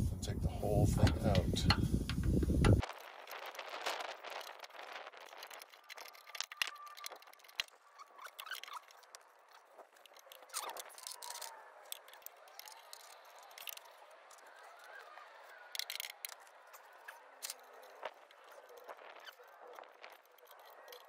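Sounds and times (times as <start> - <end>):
hand wrench clicking on metal: 10.0 - 14.0, 15.7 - 16.4.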